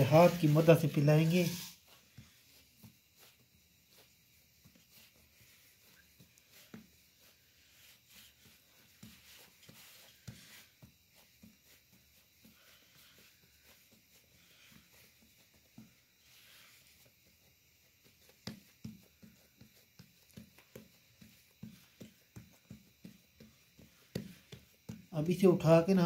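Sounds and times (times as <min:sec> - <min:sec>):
fingers patting pizza dough: 0:00.0 - 0:26.0.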